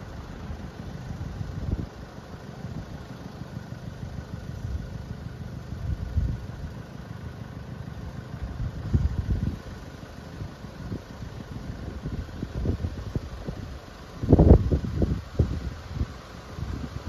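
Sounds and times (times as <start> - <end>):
wind buffeting microphone: 11.7 - 17.0.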